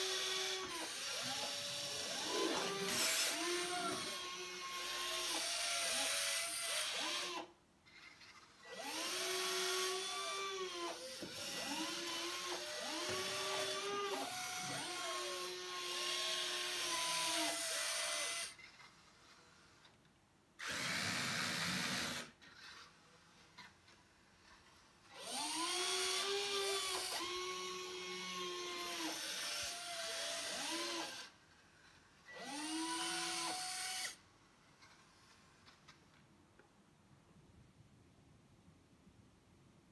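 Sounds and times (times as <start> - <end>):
servo motors whining: 0.0 - 5.5
rough motor burst: 0.3 - 4.2.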